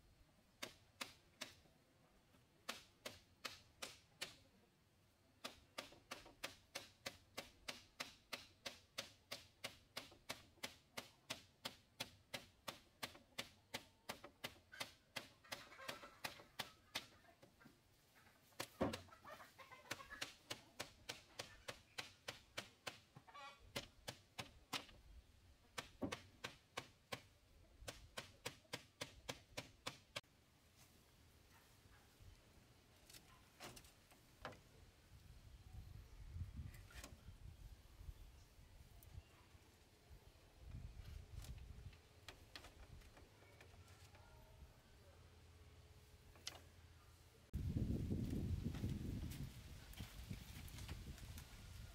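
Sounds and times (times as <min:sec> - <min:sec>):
tool tapping on bamboo: 0:00.6 - 0:01.6, 0:02.6 - 0:04.5, 0:05.4 - 0:17.6, 0:19.9 - 0:25.0, 0:25.7 - 0:30.2
chickens clucking: 0:14.6 - 0:21.8, 0:23.1 - 0:24.0.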